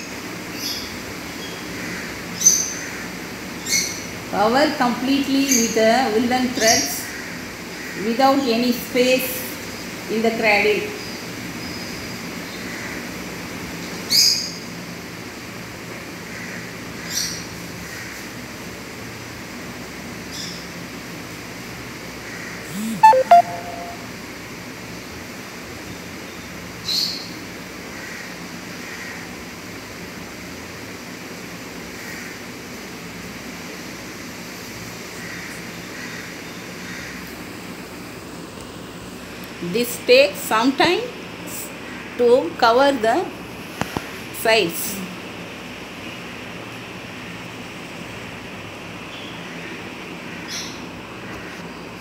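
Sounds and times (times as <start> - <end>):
steady background hiss: 0.0 - 52.0
short high-pitched chirp: 22.8 - 24.1.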